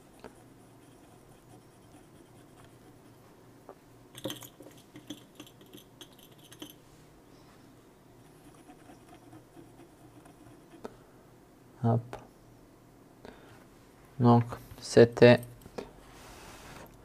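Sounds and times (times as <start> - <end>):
tool scraping circuit board: 0.0 - 3.2, 8.2 - 10.9.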